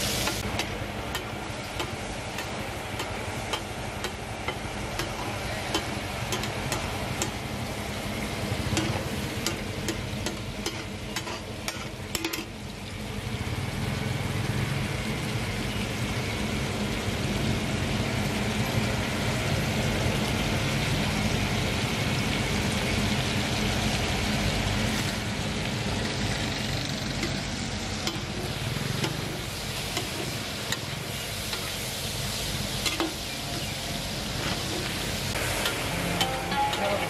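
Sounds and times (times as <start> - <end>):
liver sizzling in oil: 0.0 - 37.0
metal spatula scraping a griddle: 10.6 - 12.5, 34.4 - 37.0.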